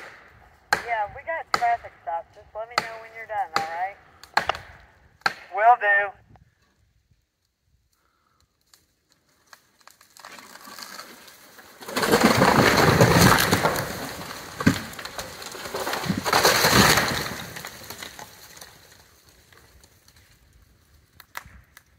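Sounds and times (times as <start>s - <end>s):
tree crashing through branches: 9.6s - 20.4s.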